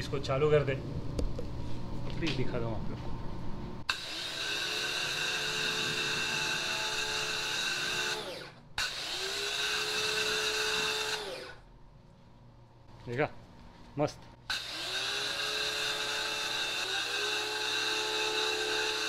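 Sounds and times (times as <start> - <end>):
pressure washer motor whine: 3.9 - 11.6, 14.5 - 19.0.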